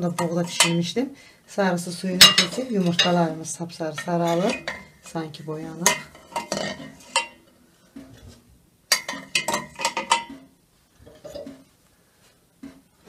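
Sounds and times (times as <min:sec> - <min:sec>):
eggs and spoon clinking in metal pot: 0:00.0 - 0:01.0, 0:02.2 - 0:03.3, 0:03.9 - 0:07.4, 0:08.9 - 0:10.5.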